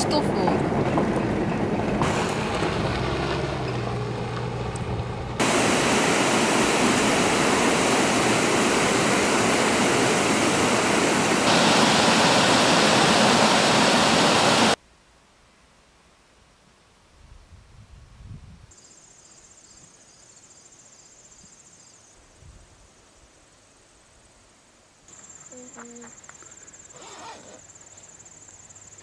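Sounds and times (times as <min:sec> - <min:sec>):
low rumble with hum: 0:00.4 - 0:08.2
waterfall rushing: 0:02.0 - 0:03.6, 0:05.4 - 0:14.8.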